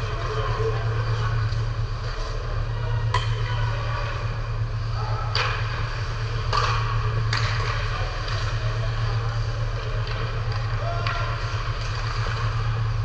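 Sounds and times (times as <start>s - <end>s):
hockey sticks and puck clacking: 0.0s - 4.2s, 5.3s - 13.0s
steady low hum: 0.0s - 13.0s.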